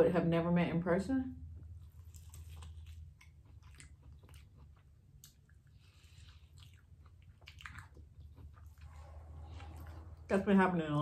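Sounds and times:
person chewing: 0:01.5 - 0:10.2.

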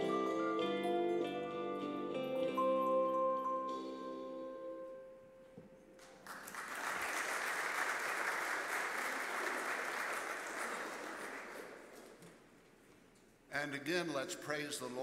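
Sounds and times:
handbell ringing note: 0:00.0 - 0:05.0
congregation applauding: 0:06.0 - 0:12.5.

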